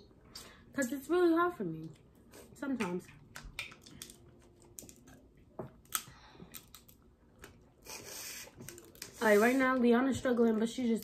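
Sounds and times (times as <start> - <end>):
crab shells cracking: 3.2 - 5.1, 5.8 - 7.6.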